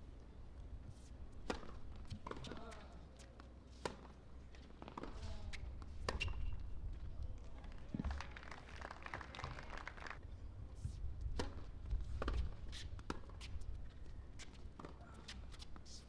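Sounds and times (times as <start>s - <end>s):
tennis ball bouncing: 1.4s - 2.6s.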